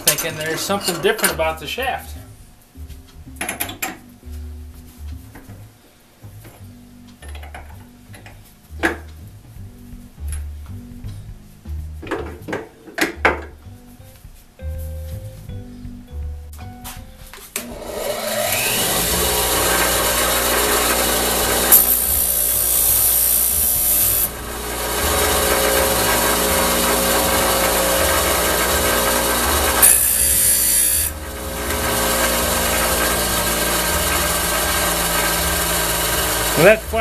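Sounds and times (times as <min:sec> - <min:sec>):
bench grinder motor whining: 0:17.6 - 0:37.0
steel file grinding on wheel: 0:18.0 - 0:37.0.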